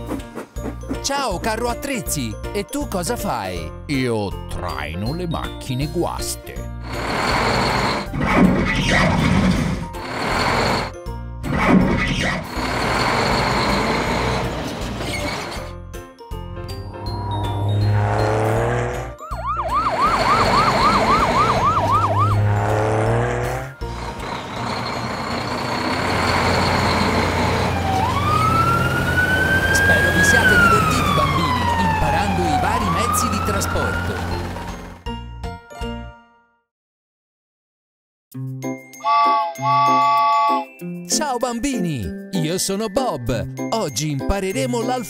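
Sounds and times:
music jingle: 0.8 - 8.1, 16.1 - 22.8, 23.4 - 36.4, 38.6 - 45.0
wailing siren: 19.0 - 22.9, 24.5 - 34.8
fast yelping siren: 19.2 - 22.5, 26.7 - 34.5.

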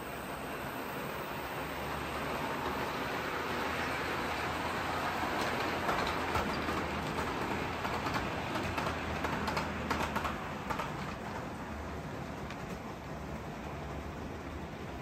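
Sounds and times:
model train running: 0.0 - 15.0
wheels clicking over track: 5.0 - 13.0.

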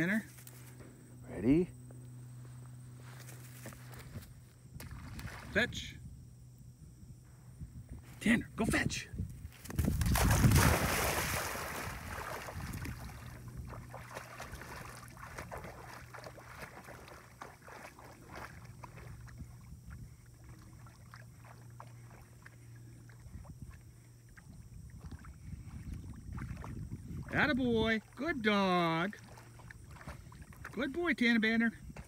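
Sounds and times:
faint low hum: 0.0 - 32.0
dog splashing into a pond: 4.7 - 5.6, 9.6 - 27.3, 28.0 - 31.4
water sloshing and lapping: 4.7 - 5.7, 9.8 - 32.0.

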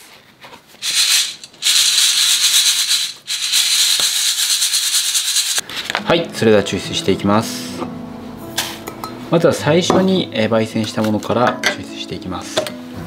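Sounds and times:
coffee beans pouring and rattling: 0.8 - 5.6.

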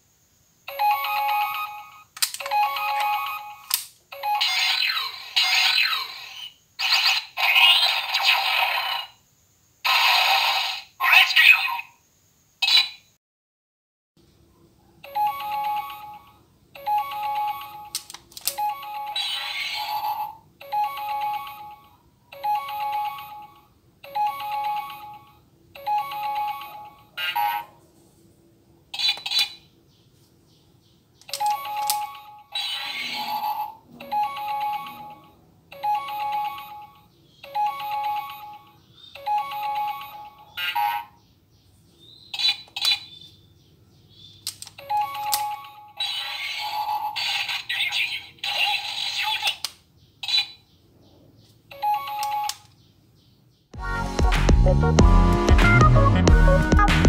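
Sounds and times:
electronic toy jingle: 0.7 - 6.5, 15.0 - 27.8, 31.3 - 41.2, 44.8 - 49.0, 51.7 - 52.6
sharp clicks: 2.2 - 4.0, 31.2 - 32.2, 44.4 - 45.7.

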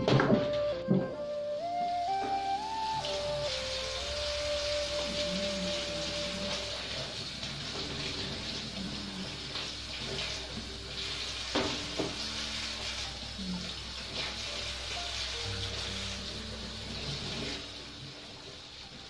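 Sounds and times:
tap water running into sink: 0.0 - 19.0.

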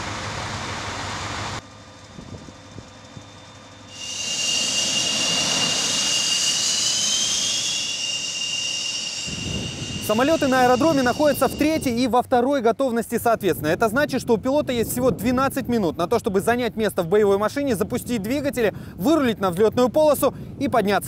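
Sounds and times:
jet engine whine: 0.0 - 12.4
rushing noise: 3.8 - 12.2.

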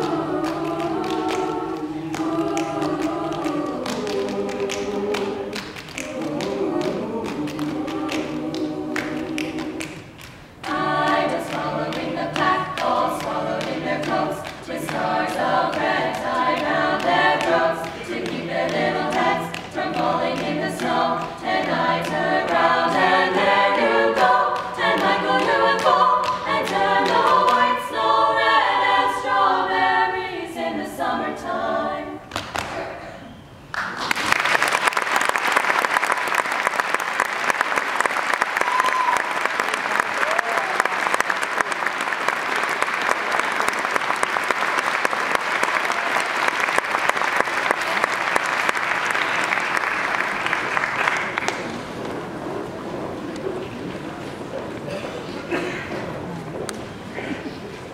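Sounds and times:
audience applause: 0.0 - 11.7, 33.8 - 52.2
a cappella group singing in harmony: 0.0 - 33.4.

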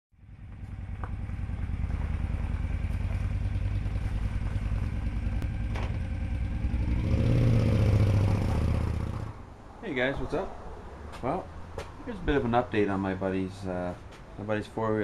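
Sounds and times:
motorcycle engine rumbling: 0.2 - 9.6.

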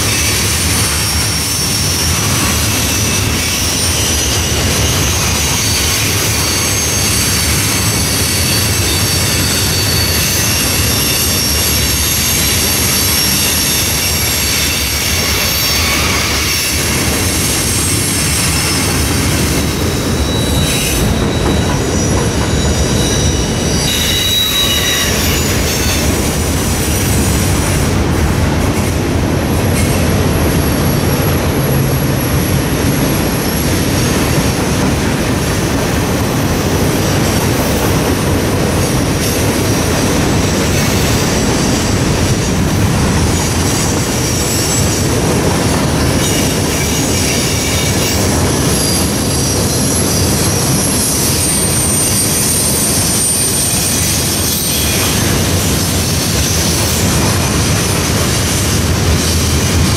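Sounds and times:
high-pitched wheel squeal: 0.0 - 27.4, 46.2 - 59.9
train wheels rumbling on rails: 0.0 - 59.9.

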